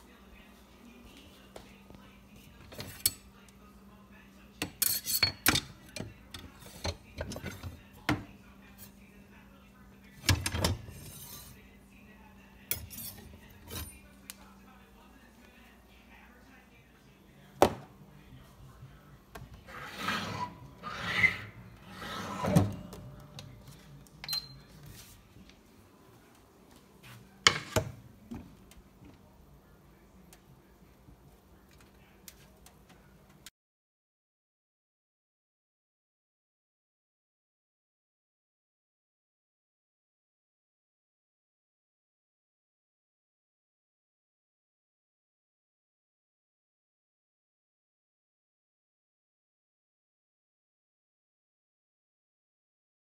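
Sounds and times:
kitchenware clicks: 4.6s - 7.7s
kitchenware knocks and clinks: 4.6s - 8.2s, 27.4s - 28.0s
scraping and rubbing: 19.6s - 22.9s.

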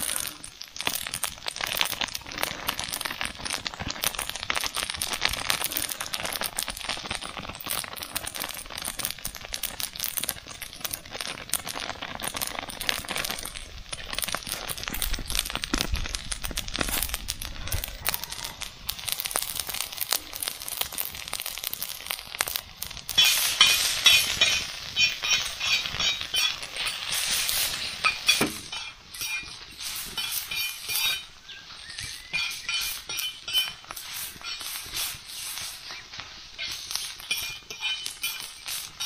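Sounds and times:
metal spoon scraping a pan: 23.1s - 39.0s.

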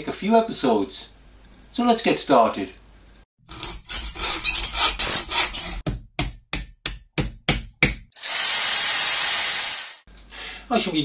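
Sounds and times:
scraping and rubbing: 3.5s - 5.8s
power tool whining: 8.2s - 10.0s.

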